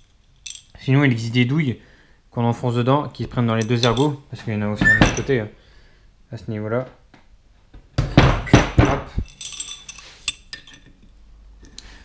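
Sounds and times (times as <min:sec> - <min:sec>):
metallic clinks: 0:00.0 - 0:00.8, 0:03.6 - 0:04.2, 0:09.2 - 0:11.1
heavy knocks on wooden table: 0:08.0 - 0:09.1.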